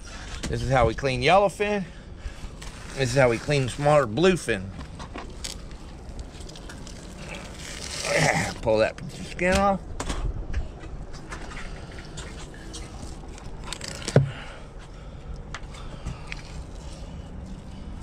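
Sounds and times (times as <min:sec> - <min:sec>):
low background rumble: 0:00.0 - 0:18.0
knife cutting and scraping fish: 0:02.4 - 0:03.8, 0:04.8 - 0:09.4, 0:11.2 - 0:14.2, 0:15.8 - 0:18.0.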